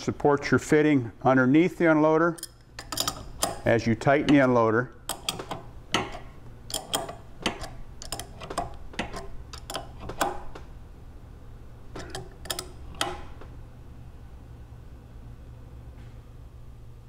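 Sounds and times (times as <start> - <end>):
low steady hum: 0.0 - 17.0
wrench clicking on metal fittings: 2.3 - 4.5, 5.1 - 10.4, 12.0 - 13.2.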